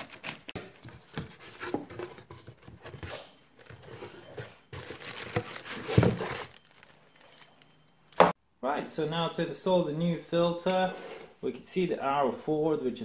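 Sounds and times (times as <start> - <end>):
packaging rustling and crinkling: 0.0 - 8.2.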